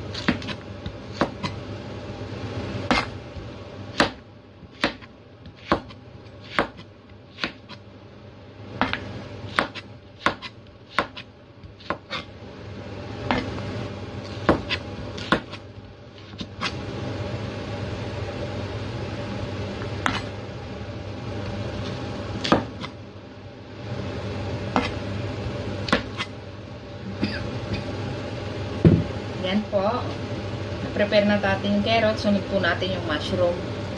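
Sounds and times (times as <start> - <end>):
steady low hum: 0.0 - 33.9
knife chopping on plastic board: 0.2 - 1.6, 2.9 - 3.1, 3.9 - 7.8, 8.8 - 12.3, 14.4 - 15.6, 20.0 - 20.2, 22.4 - 22.9, 25.9 - 26.3.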